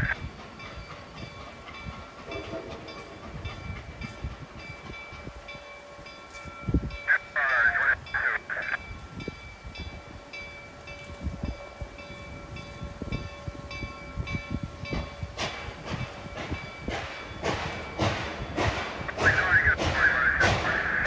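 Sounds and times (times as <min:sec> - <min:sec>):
steam locomotive bell ringing: 0:00.0 - 0:21.0
steam locomotive exhaust chuffs: 0:08.7 - 0:21.0.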